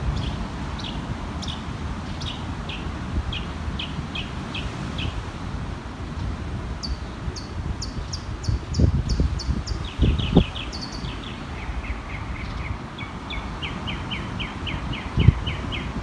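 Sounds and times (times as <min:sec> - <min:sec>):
wind rumble on microphone: 0:00.0 - 0:16.0
bird chirping: 0:06.8 - 0:16.0.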